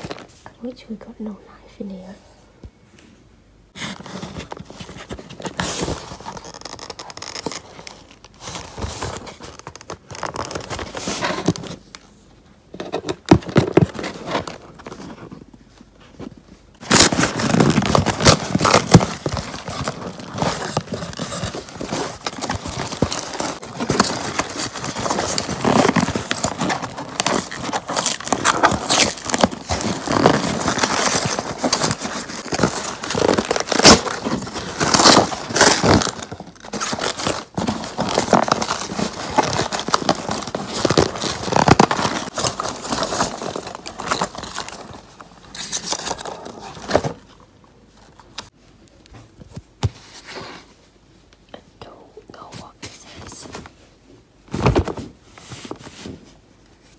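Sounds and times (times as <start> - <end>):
packaging crinkling and rustling: 0.0 - 0.4, 3.7 - 51.0
cardboard and tape ripping: 16.8 - 47.2.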